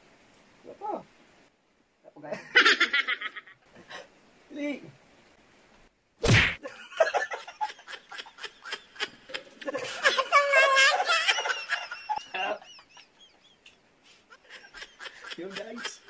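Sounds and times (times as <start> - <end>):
men laughing hard: 6.6 - 16.0.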